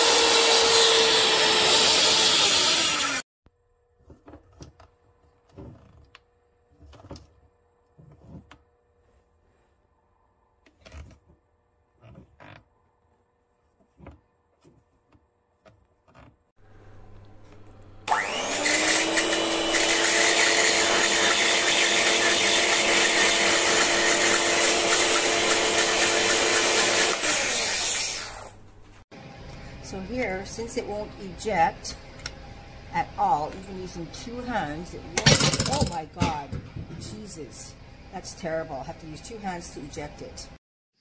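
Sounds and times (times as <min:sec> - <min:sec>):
electric hand mixer whirring: 0:00.0 - 0:03.2, 0:18.0 - 0:28.6.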